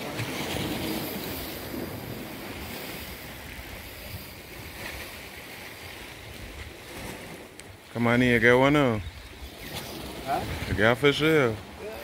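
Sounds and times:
sea water lapping on rocks: 0:00.0 - 0:08.9
wind on microphone: 0:08.3 - 0:12.0.

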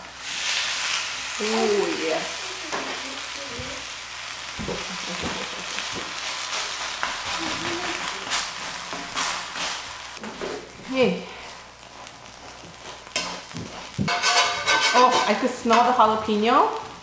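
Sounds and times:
pancake sizzling in oil: 0:00.0 - 0:17.0
metal spatula scraping griddle: 0:12.2 - 0:16.2.

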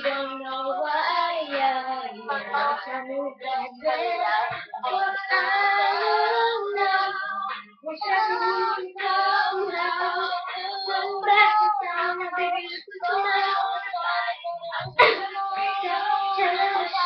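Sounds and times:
girl singing: 0:00.0 - 0:17.0.

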